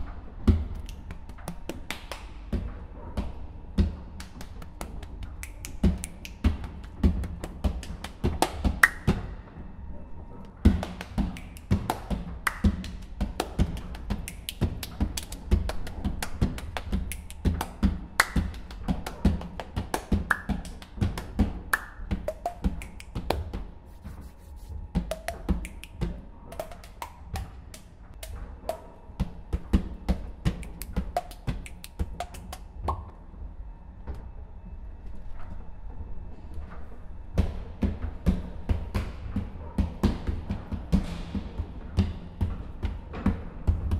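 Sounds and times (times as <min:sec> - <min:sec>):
low steady hum: 0:00.0 - 0:43.9
finger snaps: 0:00.8 - 0:02.4, 0:04.2 - 0:09.2, 0:10.8 - 0:23.6, 0:25.1 - 0:29.0, 0:30.4 - 0:33.1
hand taps: 0:25.0 - 0:33.1.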